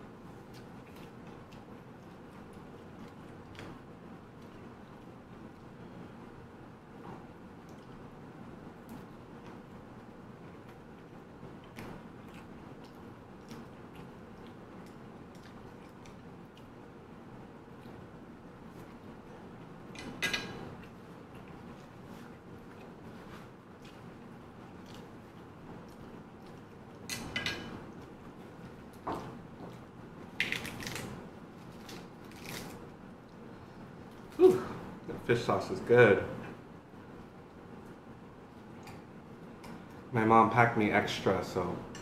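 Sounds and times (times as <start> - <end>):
person chewing food: 20.8 - 27.1
lettuce leaves being torn: 30.4 - 32.9.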